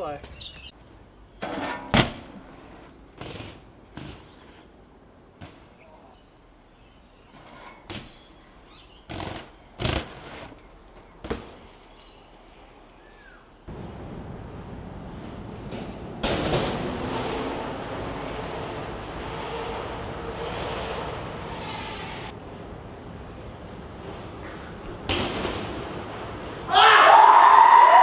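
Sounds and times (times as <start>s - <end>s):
bike clattering on hard ground: 1.4s - 5.8s, 7.3s - 11.9s, 14.6s - 17.4s, 23.4s - 26.8s.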